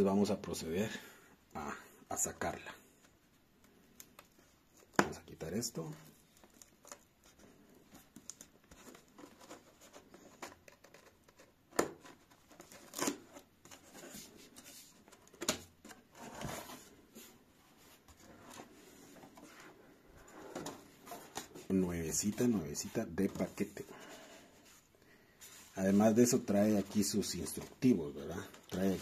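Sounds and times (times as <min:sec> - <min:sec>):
cardboard rustling and tearing: 0:08.3 - 0:15.0.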